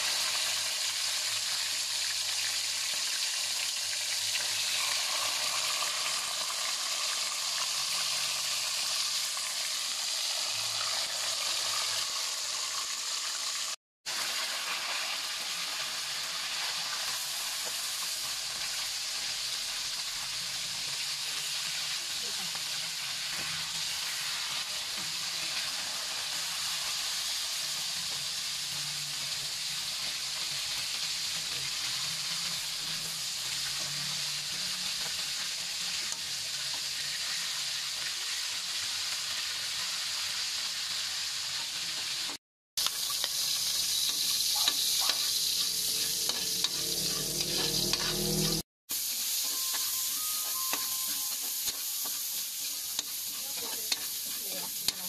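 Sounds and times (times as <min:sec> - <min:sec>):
oil sizzling in a wok: 0:00.0 - 0:55.0
metal spatula scraping a wok: 0:42.9 - 0:55.0.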